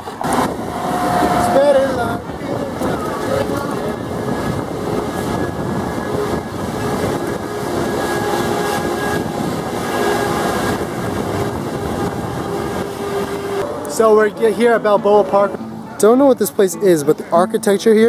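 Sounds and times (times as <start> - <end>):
wind noise: 0.0 - 14.3
tram motor and tyres rumbling: 0.0 - 15.8.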